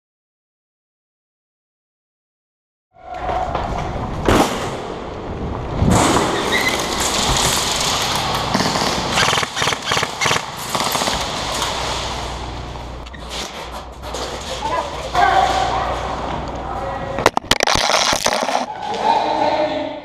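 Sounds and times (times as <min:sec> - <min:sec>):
sharp knocks and cracks: 0:05.8 - 0:12.2.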